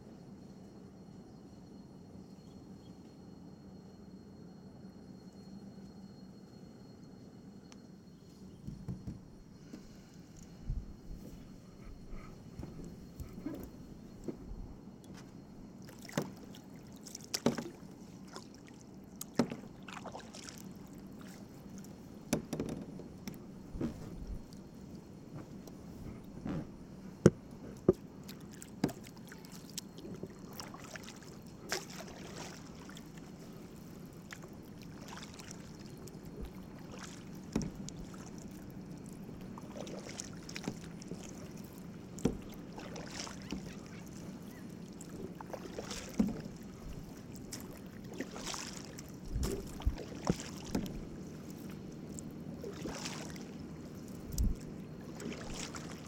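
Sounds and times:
steady low hum: 0:00.0 - 0:56.0
paddle knocking against hull: 0:08.6 - 0:09.9, 0:22.3 - 0:24.0, 0:36.4 - 0:38.3, 0:42.1 - 0:43.9, 0:45.4 - 0:47.7, 0:48.3 - 0:51.2
paddle splashing through water: 0:15.8 - 0:21.6, 0:27.8 - 0:56.0.

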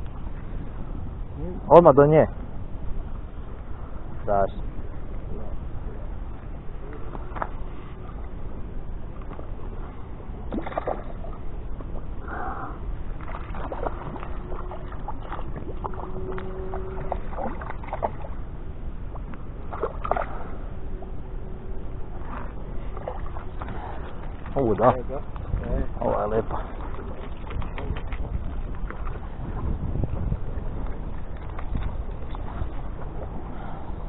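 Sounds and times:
steady low rumble: 0:00.0 - 0:34.0
small water splashes: 0:10.4 - 0:12.4, 0:13.1 - 0:18.5, 0:19.1 - 0:20.6, 0:22.1 - 0:33.8
water lapping on rocky shore: 0:10.5 - 0:18.5, 0:19.1 - 0:21.1, 0:22.0 - 0:34.0.

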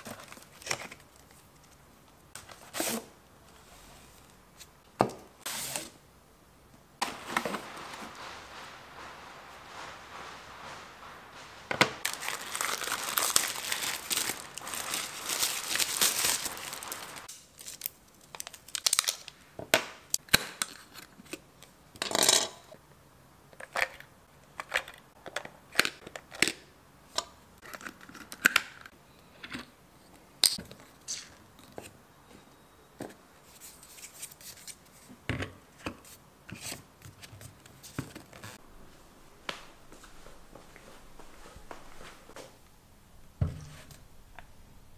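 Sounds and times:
paper rustling: 0:07.0 - 0:19.1.

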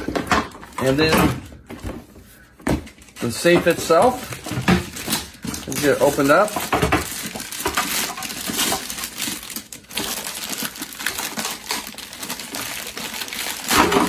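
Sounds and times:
plastic bag crinkling: 0:03.0 - 0:14.0.

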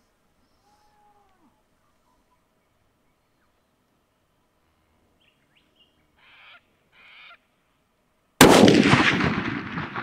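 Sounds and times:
bird harsh calls: 0:05.2 - 0:07.4
rifle shot echoing: 0:08.4 - 0:10.0.

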